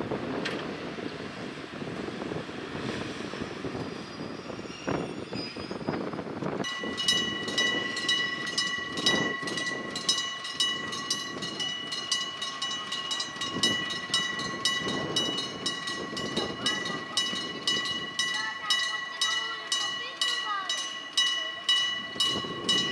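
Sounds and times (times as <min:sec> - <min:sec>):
level crossing warning bell: 0:06.6 - 0:22.9.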